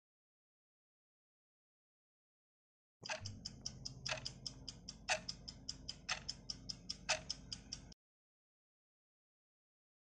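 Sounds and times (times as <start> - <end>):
clock-style ticking: 3.0 - 8.0.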